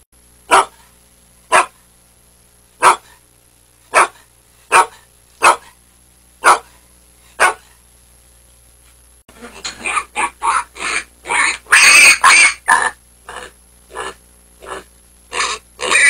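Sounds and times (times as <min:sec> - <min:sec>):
dog barking: 0:00.5 - 0:00.9, 0:01.5 - 0:01.8, 0:02.8 - 0:03.2, 0:03.9 - 0:05.8, 0:06.4 - 0:06.8, 0:07.4 - 0:07.8, 0:09.8 - 0:13.0.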